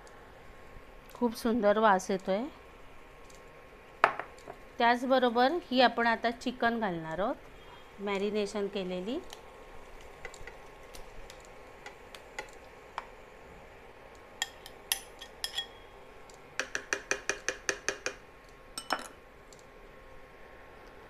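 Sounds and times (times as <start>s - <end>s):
spoon scraping glass bowl: 15.2s - 15.8s.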